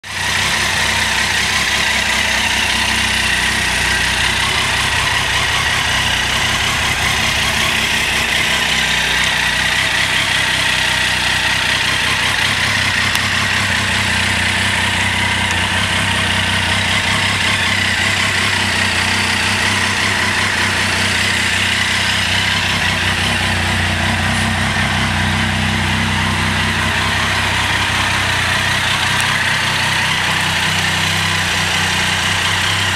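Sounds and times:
motorcycle engine idling: 0.0 - 32.9.

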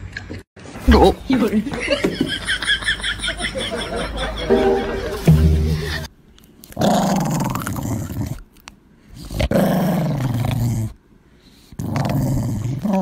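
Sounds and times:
small dog growling: 6.8 - 8.4, 9.2 - 11.0, 11.7 - 13.0.

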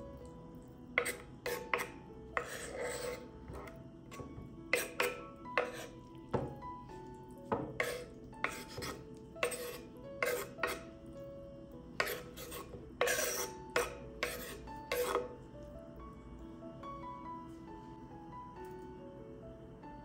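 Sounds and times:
knife scraping wooden cutting board: 1.0 - 3.7, 4.7 - 5.9, 7.8 - 10.8, 12.0 - 15.3.

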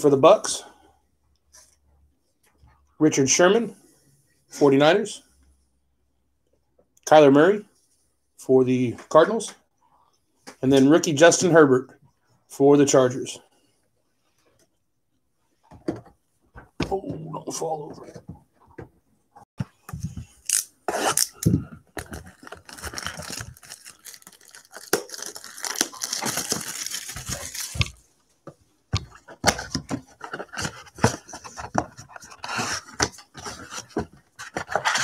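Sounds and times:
cardboard ripping: 20.3 - 28.0.

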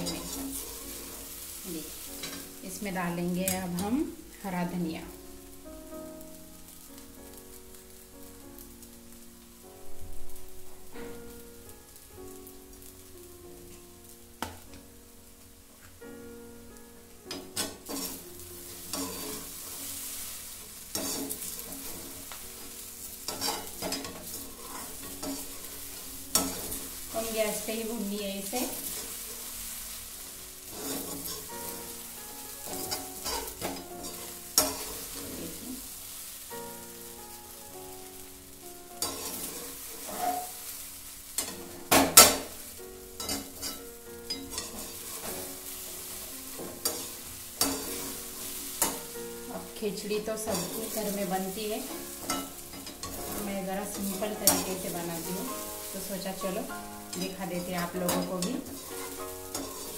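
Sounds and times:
food sizzling in a pan: 0.0 - 59.9
metal spatula scraping pan: 17.3 - 27.4, 30.6 - 32.0, 32.6 - 35.8, 39.0 - 40.7, 43.2 - 49.3, 50.4 - 59.9.

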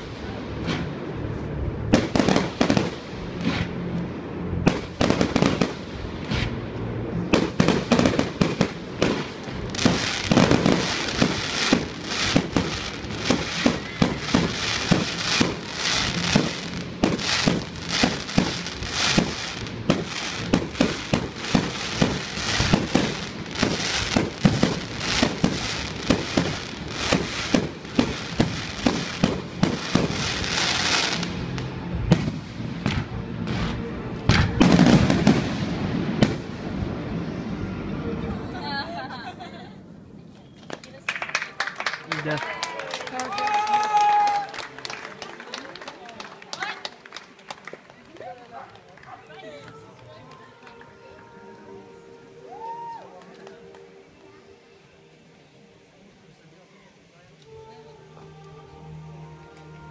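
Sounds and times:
fireworks bangs and pops: 1.8 - 36.8.

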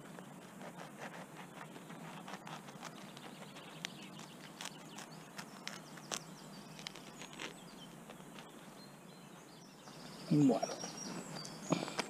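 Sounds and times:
knife cutting crusty bread: 0.0 - 8.6
faint bird chirps: 0.0 - 12.0.

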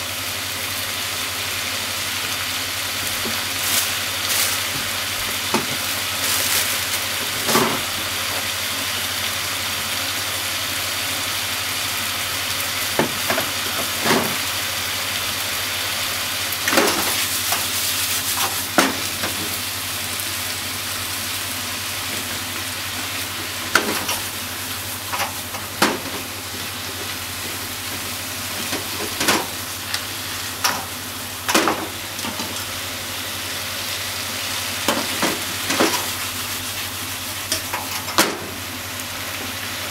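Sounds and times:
food sizzling in a frying pan: 0.0 - 39.9.

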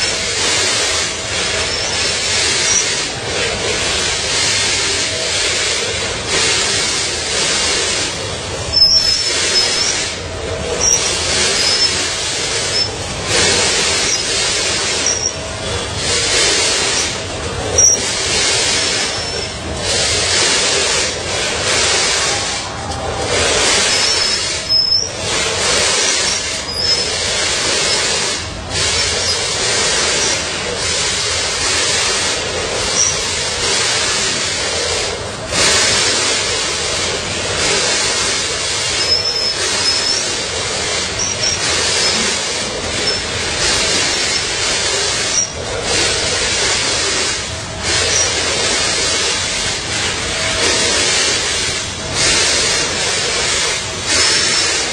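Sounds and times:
machine hiss: 0.0 - 54.9
packing machine running: 0.0 - 54.9
short high squeaks: 1.6 - 3.0, 8.7 - 10.2, 10.8 - 13.0, 13.6 - 15.4, 16.9 - 19.6, 23.8 - 25.2, 25.8 - 28.2, 32.9 - 33.3, 38.9 - 40.4, 41.1 - 42.4, 43.0 - 43.4, 45.2 - 45.6, 48.0 - 48.4.

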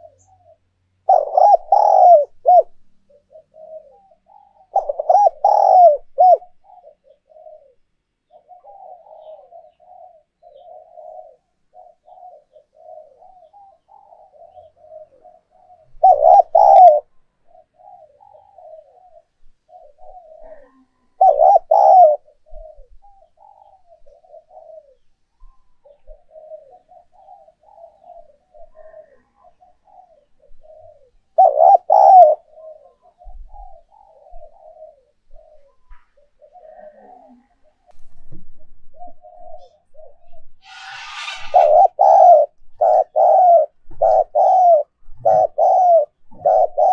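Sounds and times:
dove cooing: 0.0 - 46.9.

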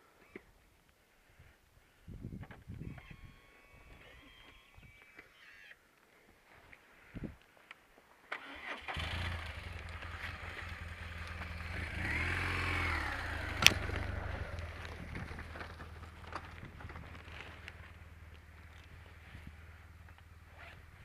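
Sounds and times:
motorcycle engine starting and idling: 8.3 - 21.0.

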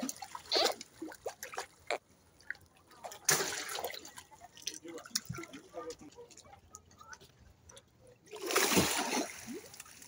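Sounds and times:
small water sounds: 0.0 - 10.0
fish splashing at water surface: 3.0 - 5.6, 8.3 - 10.0.

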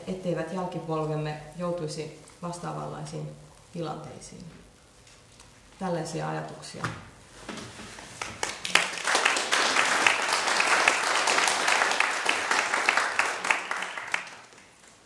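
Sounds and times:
audience applauding: 8.2 - 14.8.

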